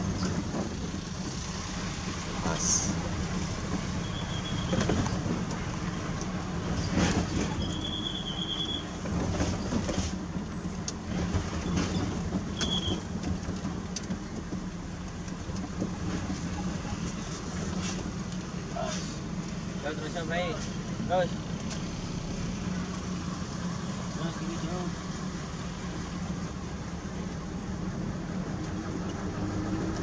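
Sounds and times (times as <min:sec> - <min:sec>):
diesel engine running: 0:00.0 - 0:29.4
cab rattles and knocks: 0:09.0 - 0:18.3.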